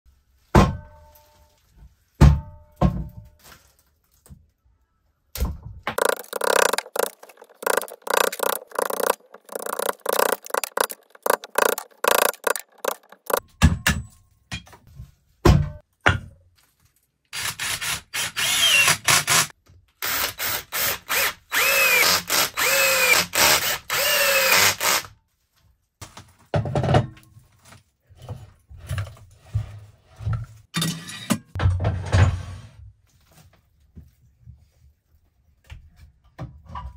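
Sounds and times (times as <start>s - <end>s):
power drill running: 6.0s - 13.4s, 17.4s - 25.1s
wood block knocking: 6.0s - 13.4s.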